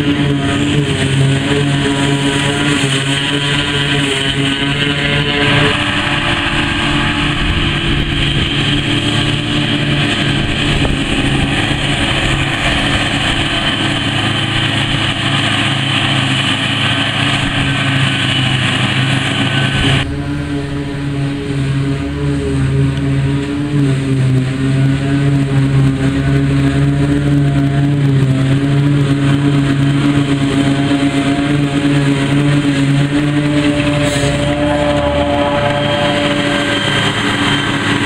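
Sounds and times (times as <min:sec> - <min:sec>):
harvester engine drone: 0:00.0 - 0:38.0
hiss of crop cut and blown: 0:29.2 - 0:38.0.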